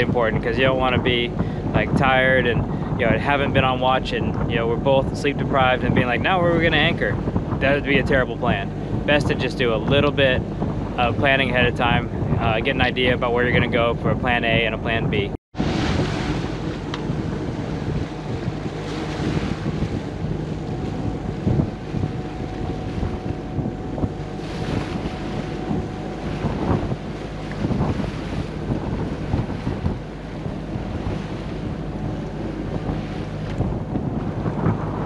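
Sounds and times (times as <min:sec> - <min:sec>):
boat engine droning: 0:00.0 - 0:35.0
wind buffeting microphone: 0:00.0 - 0:35.0
water wash: 0:15.6 - 0:35.0.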